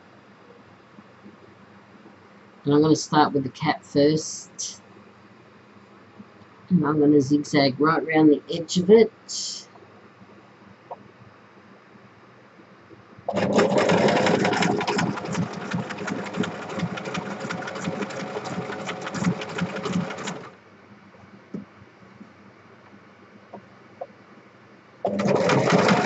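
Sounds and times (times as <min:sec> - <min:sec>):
electric sewing machine running: 0:13.3 - 0:20.6, 0:25.0 - 0:26.0.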